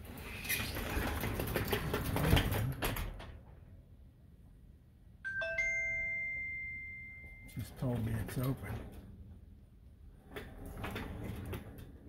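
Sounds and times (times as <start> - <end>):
garage door rattling: 0.0 - 3.9, 7.8 - 12.0
two-note electronic chime: 5.3 - 7.6.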